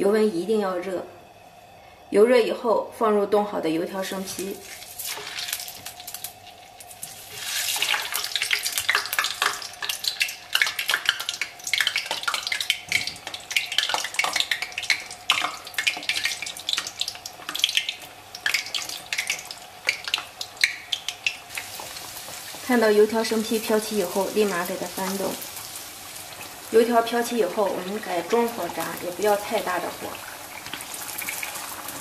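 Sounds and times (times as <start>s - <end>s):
oil sizzling and popping: 4.1s - 32.0s
dough splashing into oil: 4.6s - 22.8s, 28.2s - 32.0s.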